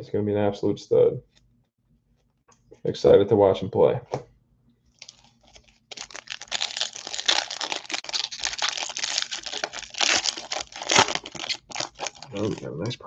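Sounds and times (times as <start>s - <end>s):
foil wrapper crinkling and tearing: 4.9s - 12.6s.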